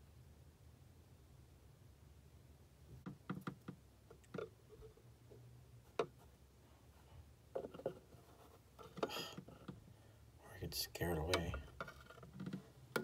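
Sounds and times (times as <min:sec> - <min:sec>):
faint clicks and taps: 0:02.9 - 0:06.3, 0:11.0 - 0:13.0.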